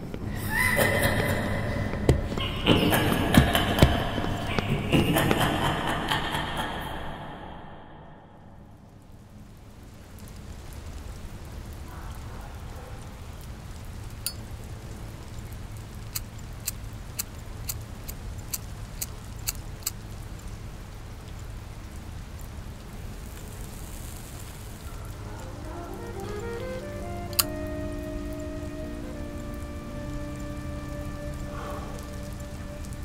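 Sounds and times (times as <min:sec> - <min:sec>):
steady rain: 0:00.0 - 0:07.6, 0:08.4 - 0:33.0
sharp clicks: 0:27.3 - 0:27.6.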